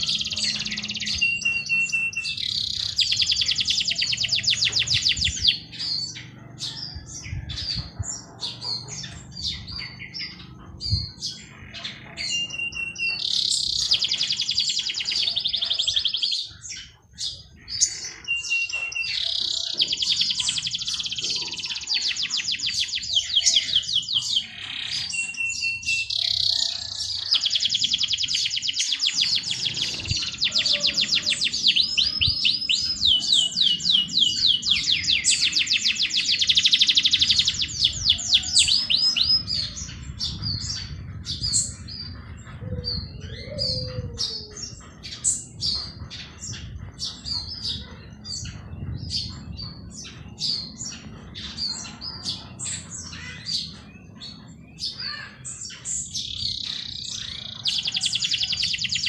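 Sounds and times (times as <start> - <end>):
songbird trilling: 0.0 - 59.0.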